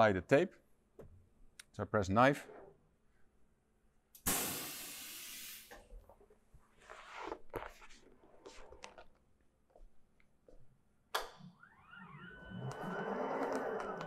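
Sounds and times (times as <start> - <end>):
faint whine: 11.4 - 14.0.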